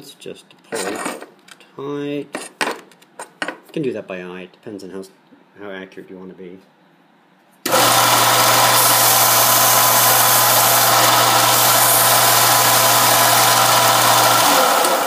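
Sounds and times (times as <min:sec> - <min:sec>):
belt sander running: 0:07.7 - 0:15.0.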